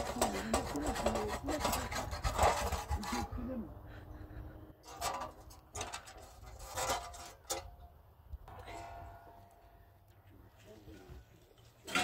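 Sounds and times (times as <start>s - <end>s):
rough scraping strokes: 0.0s - 3.6s, 4.8s - 7.7s.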